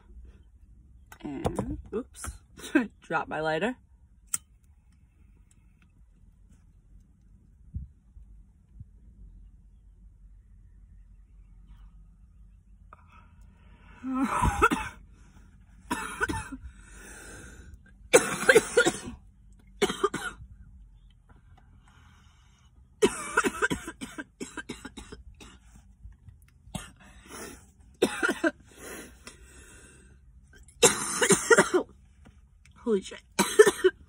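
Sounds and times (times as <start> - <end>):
woman coughing: 14.2 - 15.0, 15.9 - 16.6, 18.1 - 19.2, 19.8 - 20.4, 23.0 - 25.6, 28.0 - 28.6, 30.8 - 31.9, 33.4 - 34.0.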